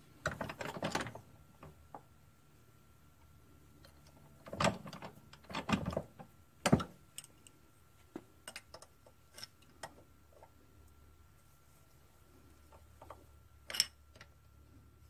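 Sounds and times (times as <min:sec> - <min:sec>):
metal parts clinking on a workbench: 0:13.7 - 0:14.3.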